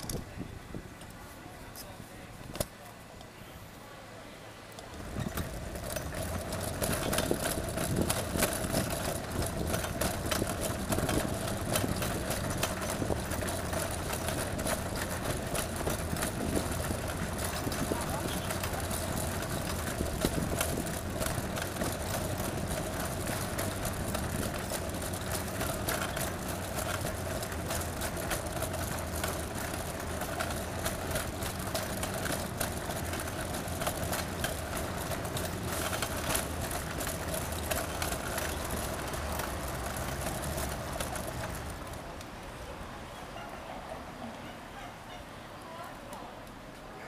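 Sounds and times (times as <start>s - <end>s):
constant hum: 0.0s - 47.0s
traffic and engine noise: 0.0s - 47.0s.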